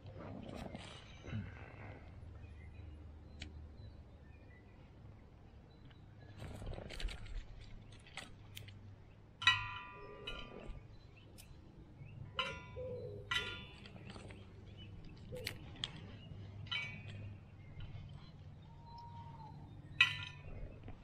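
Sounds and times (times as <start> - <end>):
bird harsh calls: 10.0 - 21.0.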